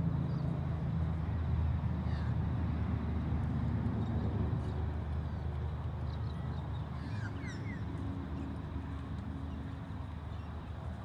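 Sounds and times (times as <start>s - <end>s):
horse hoofbeats on grass: 7.4s - 11.0s.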